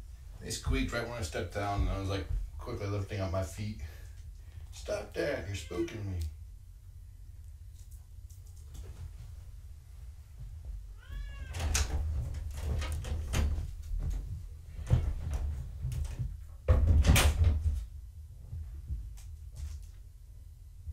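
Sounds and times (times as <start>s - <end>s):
kitten mewing: 11.0s - 11.6s.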